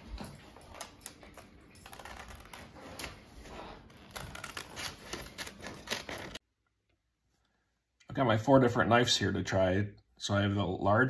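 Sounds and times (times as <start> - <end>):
paper rustling: 0.7 - 6.4
scissors snipping paper: 4.0 - 6.4.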